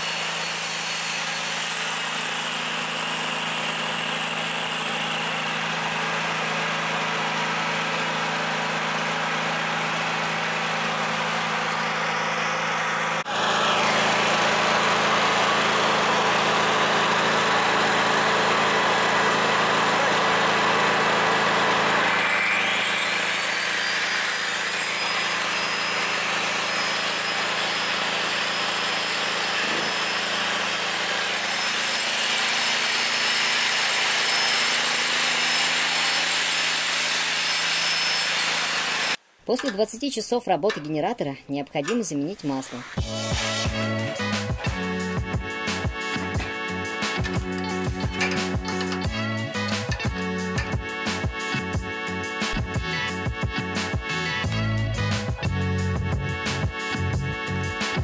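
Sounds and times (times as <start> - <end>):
angle grinder whine: 0.0 - 39.8, 41.8 - 58.0
generator engine running: 0.0 - 39.9, 41.8 - 58.0.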